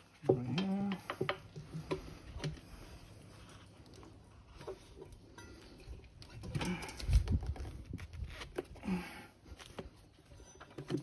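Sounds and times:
rubber squeaks: 7.1s - 8.9s.

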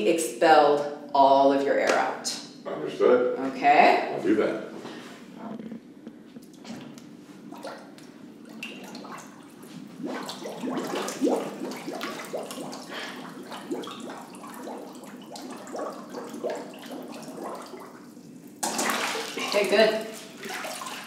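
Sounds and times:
water sloshing and splashing: 6.4s - 21.0s
gurgling bubbles: 7.4s - 21.0s.

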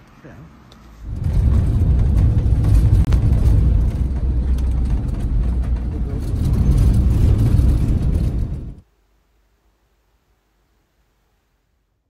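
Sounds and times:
van engine and road rumble: 0.0s - 8.9s.

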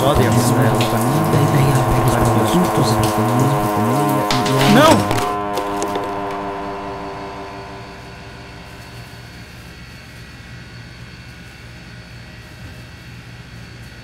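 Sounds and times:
held musical chord: 0.0s - 9.9s
faint high whine: 0.0s - 12.8s
low machine hum: 0.0s - 14.0s.

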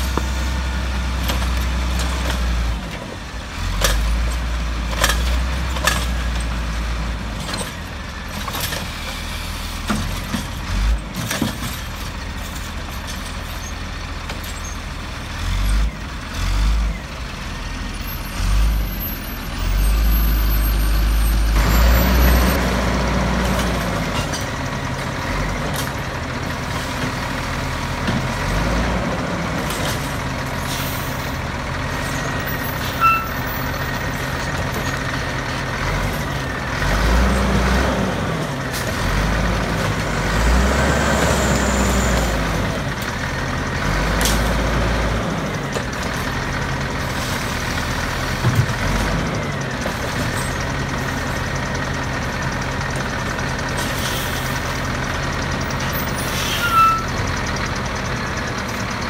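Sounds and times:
garbage truck engine revving: 15.0s - 59.0s.

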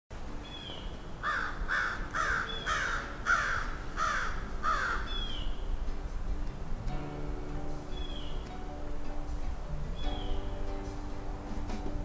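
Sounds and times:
crow cawing: 1.2s - 5.4s.

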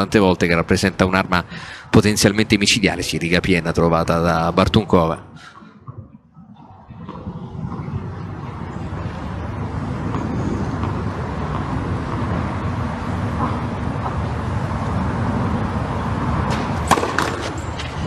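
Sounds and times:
open-air ambience rumble and hiss: 0.0s - 18.0s.

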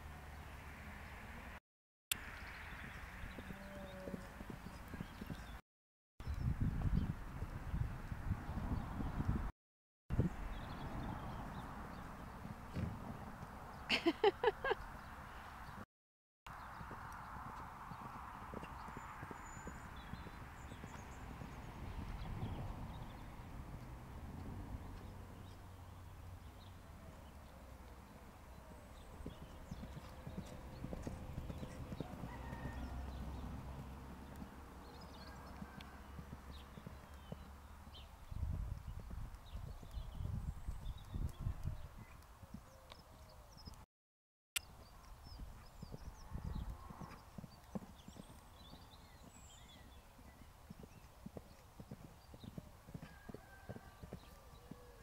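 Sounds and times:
hoofbeats on grass: 28.6s - 37.6s, 45.4s - 55.0s.

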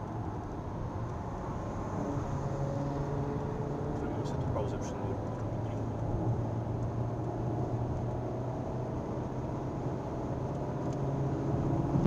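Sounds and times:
car engine drone: 0.0s - 12.0s
tyre and road noise: 0.0s - 12.0s.

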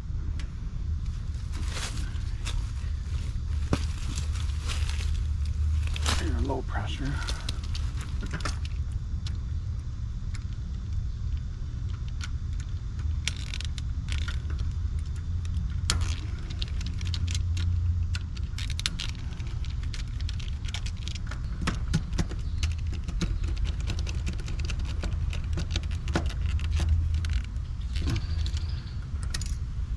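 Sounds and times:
steady low rumble: 0.0s - 29.9s
metal clicking and rattling: 11.9s - 29.6s.

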